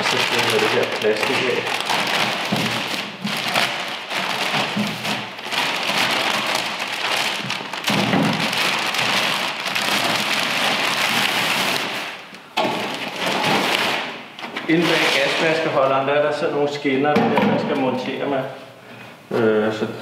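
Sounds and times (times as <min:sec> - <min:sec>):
plastic packaging crinkling: 0:00.0 - 0:15.8.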